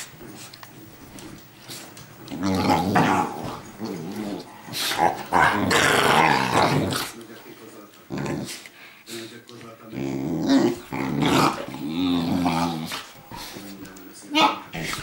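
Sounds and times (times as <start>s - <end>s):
dogs growling: 2.2s - 7.3s, 8.0s - 9.0s, 9.8s - 13.6s.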